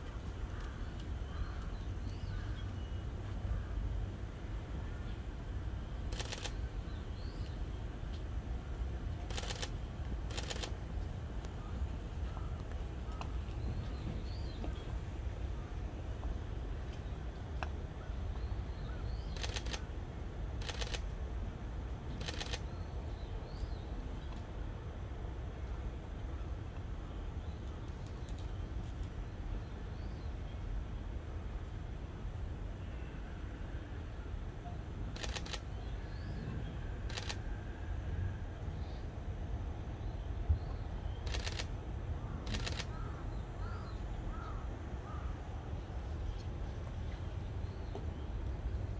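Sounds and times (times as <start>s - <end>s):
rapid clicking bursts: 6.1s - 6.6s, 9.3s - 10.7s, 19.3s - 19.8s, 20.6s - 21.0s, 22.2s - 22.6s, 35.2s - 35.6s, 41.3s - 41.7s, 42.5s - 42.9s
birds calling: 16.9s - 19.8s.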